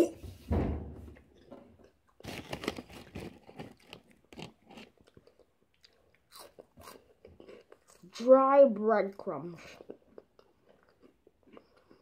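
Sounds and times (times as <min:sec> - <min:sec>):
person chewing crunchy snack: 0:01.4 - 0:08.2, 0:09.6 - 0:12.0.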